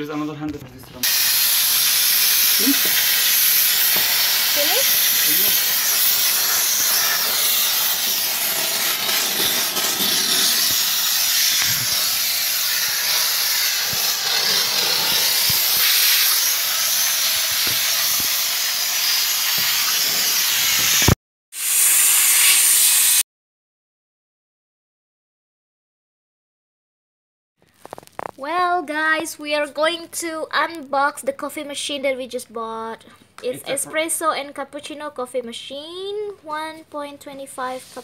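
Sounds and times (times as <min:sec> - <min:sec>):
steam cleaner hissing: 0:01.0 - 0:23.2.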